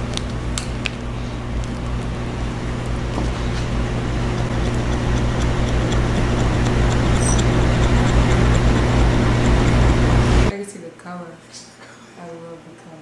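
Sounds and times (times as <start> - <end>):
small electric motor whirring: 4.2 - 10.5.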